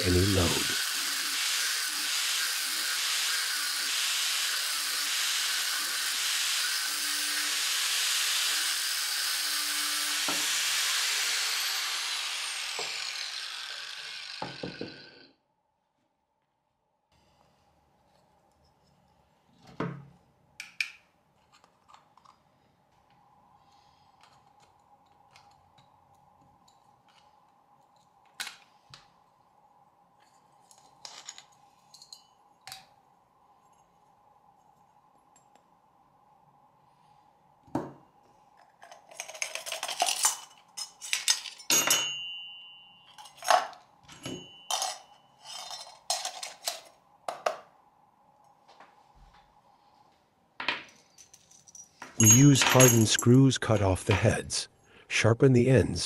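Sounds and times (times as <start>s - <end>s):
faint steady hum: 17.1s - 52.2s
metal plate and pliers clinking: 43.1s - 46.8s.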